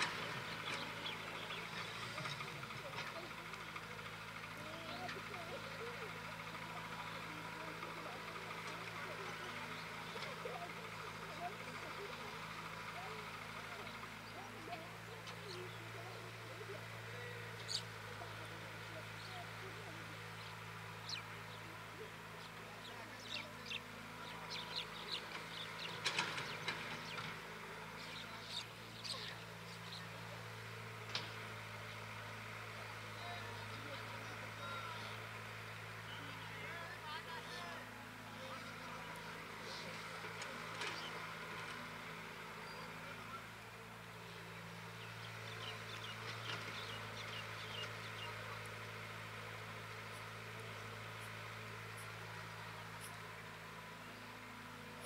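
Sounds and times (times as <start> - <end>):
birds chirping: 0.0 - 55.0
diesel engines running: 0.0 - 55.0.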